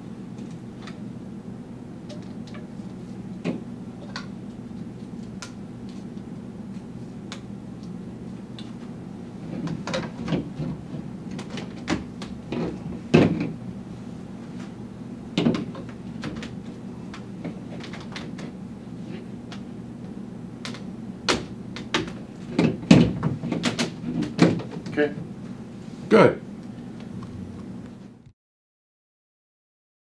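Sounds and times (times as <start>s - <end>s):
steady low hum: 0.0s - 28.3s
plastic pipes knocking and clicking: 15.4s - 16.5s.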